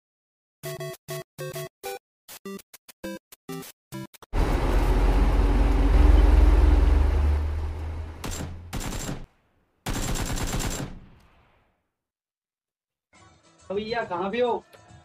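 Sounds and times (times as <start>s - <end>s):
automatic gunfire bursts: 8.2s - 9.3s, 9.9s - 11.1s.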